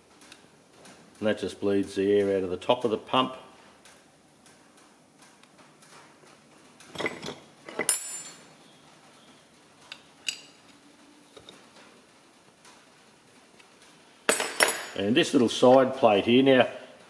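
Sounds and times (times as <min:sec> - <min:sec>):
metal tools clinking on workbench: 0:06.9 - 0:08.5, 0:10.2 - 0:10.6, 0:14.3 - 0:15.1.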